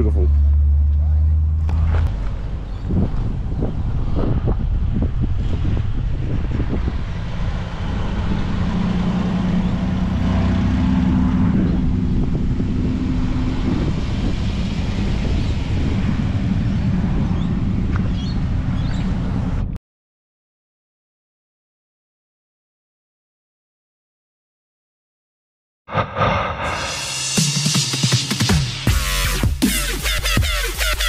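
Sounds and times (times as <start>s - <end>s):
car engine droning: 0.0s - 19.7s.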